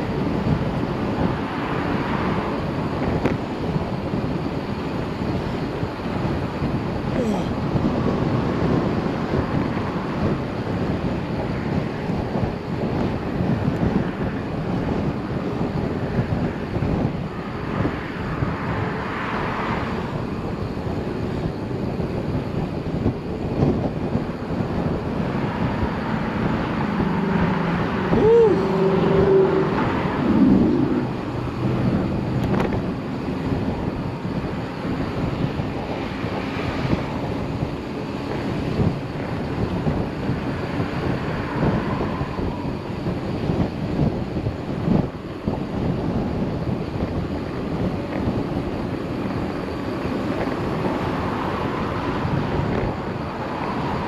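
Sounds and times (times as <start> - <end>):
road traffic hiss: 0.0 - 54.0
wind buffeting microphone: 0.0 - 54.0
vehicle passing: 24.9 - 33.3.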